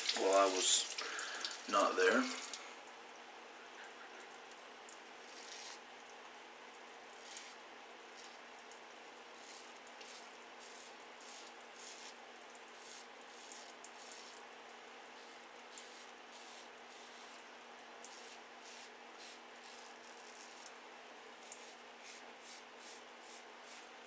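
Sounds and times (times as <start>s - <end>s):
razor scraping stubble: 5.3s - 5.8s, 7.2s - 7.6s, 8.2s - 8.4s, 9.4s - 14.4s, 15.2s - 17.4s, 18.0s - 20.7s, 21.4s - 23.9s.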